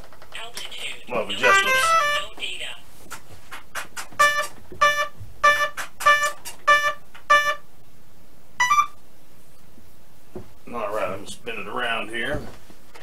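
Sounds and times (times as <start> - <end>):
short electronic beeps: 4.2 - 7.6, 8.6 - 9.0.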